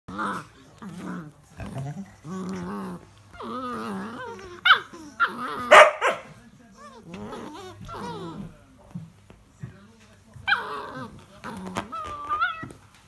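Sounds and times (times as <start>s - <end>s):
puppies play-growling: 0.1s - 9.7s, 10.3s - 13.0s
puppies whining: 1.7s - 8.6s, 10.4s - 13.0s.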